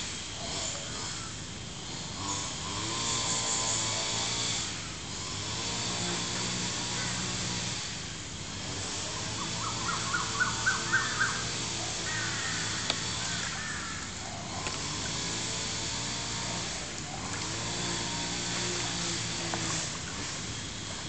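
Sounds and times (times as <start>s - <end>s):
bird calling: 9.1s - 14.6s.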